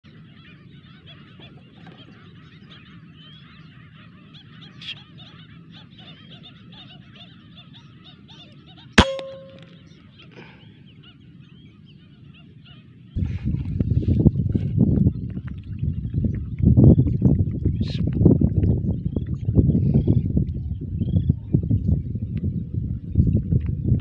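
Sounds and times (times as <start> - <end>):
many birds calling: 0.1 - 17.2
air rifle shot: 9.0 - 9.7.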